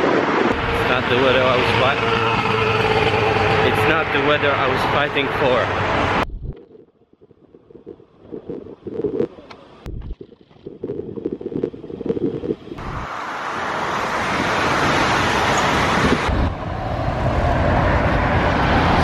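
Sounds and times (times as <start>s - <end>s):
road traffic: 0.0s - 6.3s, 11.4s - 19.0s
wind buffeting microphone: 0.0s - 19.0s.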